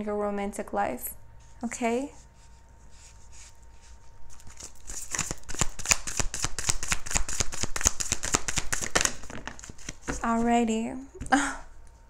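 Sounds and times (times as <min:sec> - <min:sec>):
cards being shuffled: 0:04.3 - 0:10.5.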